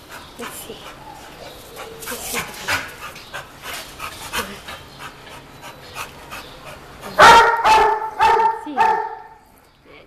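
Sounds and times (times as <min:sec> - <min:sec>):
dog panting: 0:00.0 - 0:07.6.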